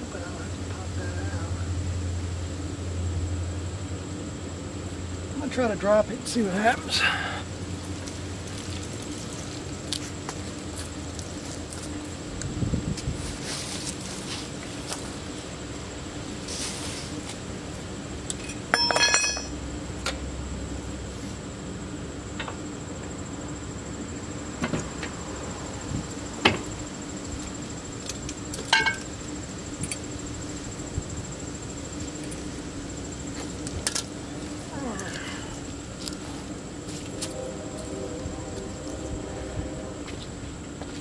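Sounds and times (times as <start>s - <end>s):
hand tools clinking on metal: 18.3s - 19.6s
bright metallic ring: 18.4s - 19.6s.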